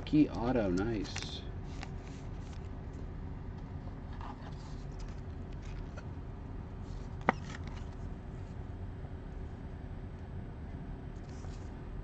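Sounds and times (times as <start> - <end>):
steady low hum: 0.0 - 12.0
card and plastic holder rustling: 7.0 - 8.1.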